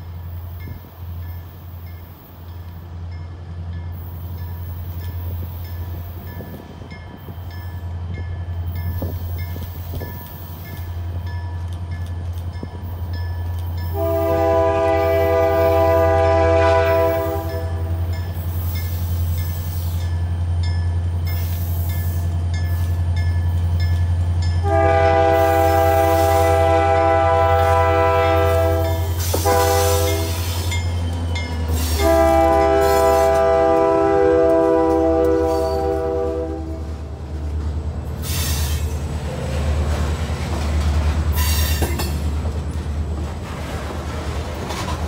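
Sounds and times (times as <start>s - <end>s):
diesel locomotive engine droning: 0.0s - 45.0s
multi-chime air horn blasts: 13.9s - 18.0s, 24.6s - 30.5s.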